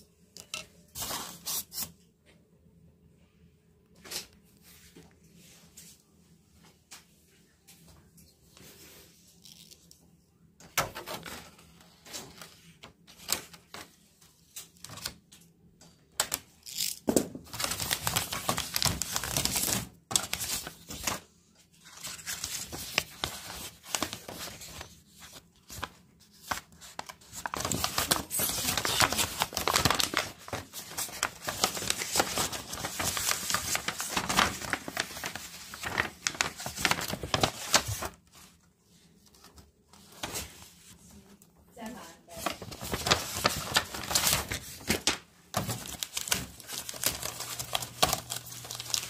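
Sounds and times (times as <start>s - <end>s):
plastic film crinkling and tearing: 16.2s - 38.4s, 42.3s - 49.0s
paper manual handled: 17.5s - 41.0s, 42.3s - 49.0s.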